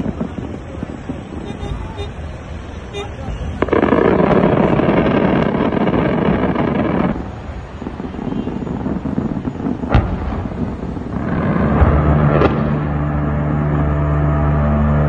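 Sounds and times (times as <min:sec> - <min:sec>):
sharp bang: 0:09.9 - 0:14.9.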